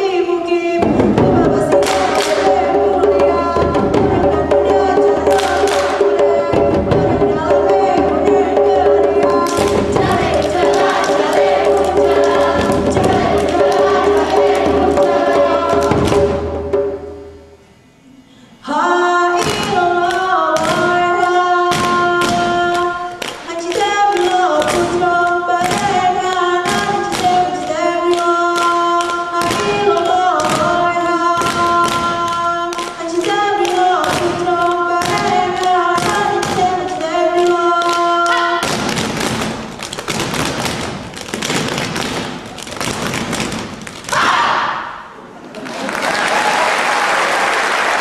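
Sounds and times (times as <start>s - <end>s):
voices singing in unison: 0.0s - 17.0s, 18.6s - 38.8s
hand claps and body slaps: 1.8s - 2.5s, 5.3s - 6.0s, 21.7s - 24.9s, 31.4s - 33.0s, 37.4s - 44.4s.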